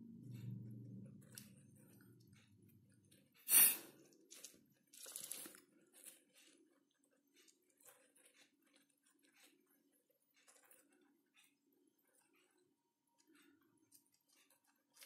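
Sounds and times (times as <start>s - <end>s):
hamsters rustling in seed: 4.4s - 6.8s.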